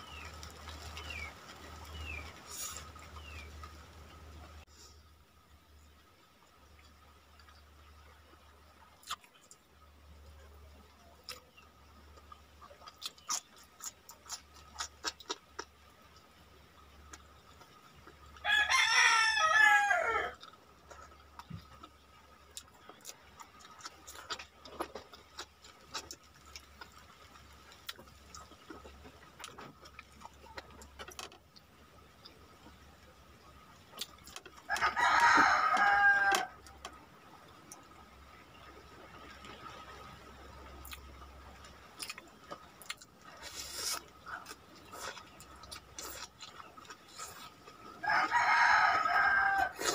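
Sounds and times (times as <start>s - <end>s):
chewing clicks: 9.0s - 9.6s, 12.1s - 15.7s, 20.4s - 27.1s, 40.8s - 47.9s
rooster crowing: 18.4s - 20.4s, 34.7s - 36.7s, 48.0s - 49.9s.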